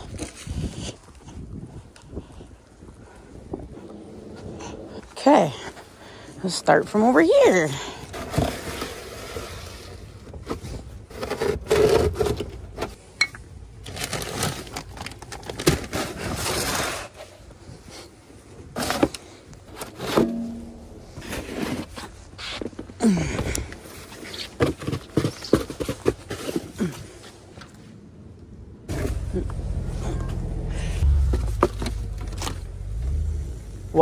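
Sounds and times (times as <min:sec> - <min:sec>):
snow shovel scraping ground: 0:19.7 - 0:22.6.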